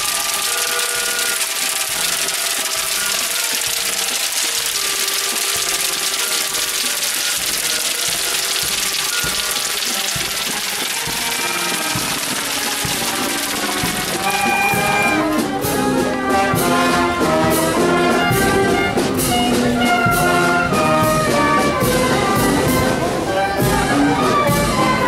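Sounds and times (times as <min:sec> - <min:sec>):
loud steady hiss: 0:00.0 - 0:15.5
music with held notes: 0:00.0 - 0:25.0.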